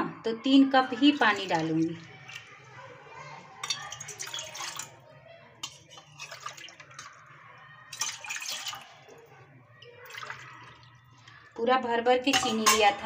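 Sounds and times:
water splashing into metal pot: 1.0s - 2.8s, 3.6s - 5.0s, 5.6s - 9.2s, 9.8s - 11.4s, 12.2s - 13.0s.

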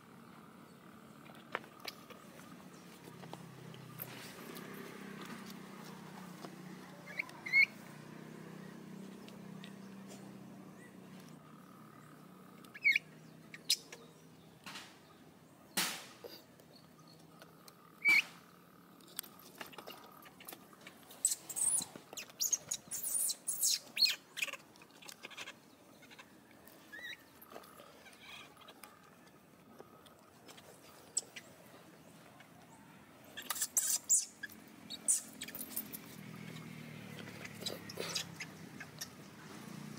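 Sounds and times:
baby monkey squeaking: 7.1s - 7.8s, 12.7s - 13.0s, 21.2s - 24.6s, 26.9s - 27.2s, 33.4s - 36.0s, 37.4s - 39.2s.

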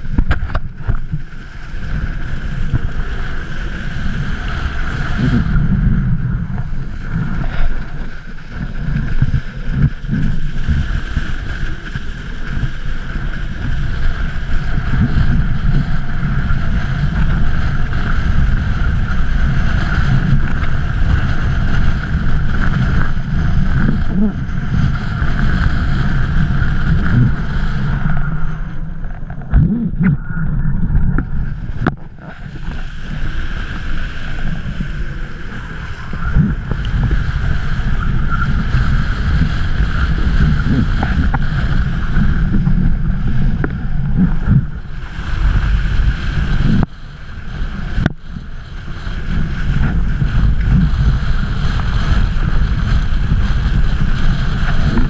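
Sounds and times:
water rushing under board: 0.0s - 55.0s
wind buffeting microphone: 0.0s - 55.0s
steady high whistle: 37.9s - 38.6s.

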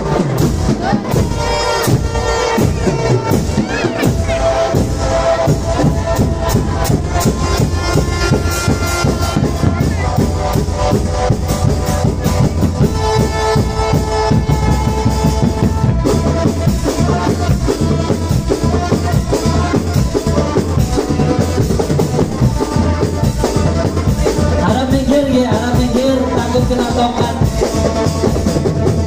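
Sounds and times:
bass and snare drums: 0.0s - 29.0s
marching band playing: 0.0s - 29.0s.

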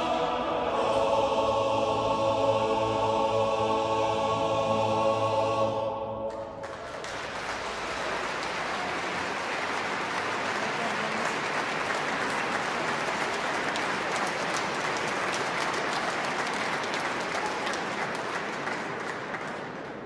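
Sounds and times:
audience applauding: 6.3s - 20.0s.

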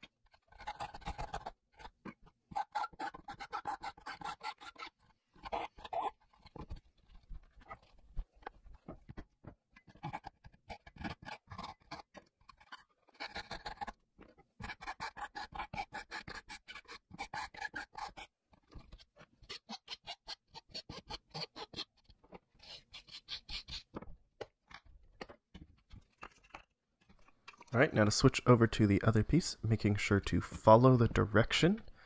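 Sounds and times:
hand saw rasping through plywood: 2.5s - 6.8s, 14.6s - 24.0s
file rasping on wood: 2.5s - 7.9s, 9.9s - 14.0s, 14.6s - 24.0s.

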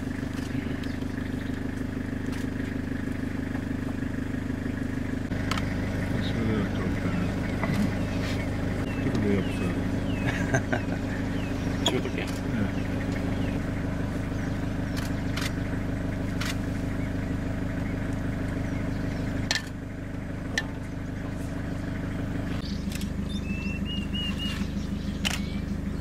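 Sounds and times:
vehicle engine running: 0.0s - 26.0s
sharp clicks: 5.4s - 5.7s, 14.9s - 15.6s, 16.3s - 16.6s, 22.8s - 23.2s, 25.2s - 25.6s
high chirps: 22.6s - 26.0s.

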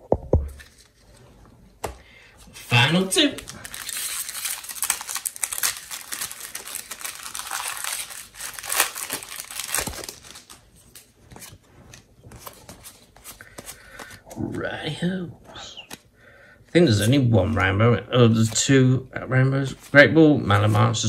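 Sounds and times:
foil wrapper crinkling and tearing: 2.7s - 11.5s.

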